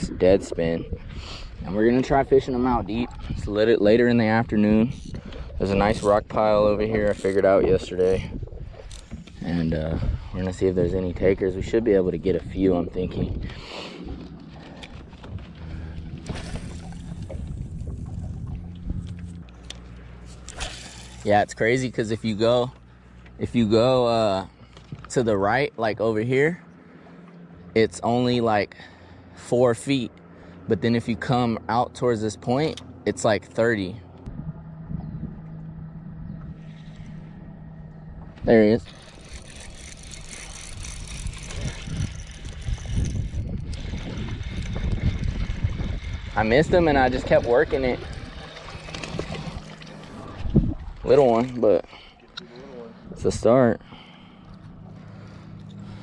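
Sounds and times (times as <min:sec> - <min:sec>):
wind buffeting microphone: 0:00.0 - 0:19.5, 0:34.2 - 0:52.0
electric trolling motor humming: 0:00.6 - 0:56.0.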